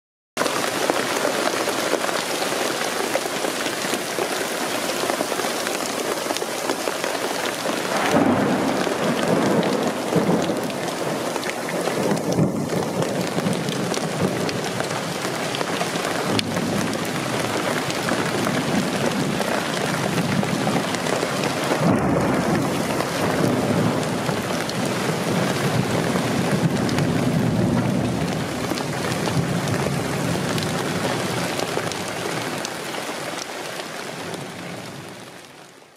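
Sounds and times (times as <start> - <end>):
hail and rain on a roof: 0.4 - 35.4
thunder rumbling: 7.6 - 32.2.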